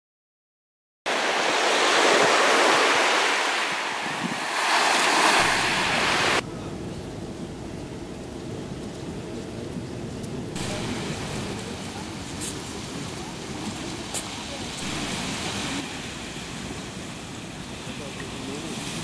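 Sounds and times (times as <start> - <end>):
waves breaking on beach: 1.1 - 6.4, 10.5 - 19.0.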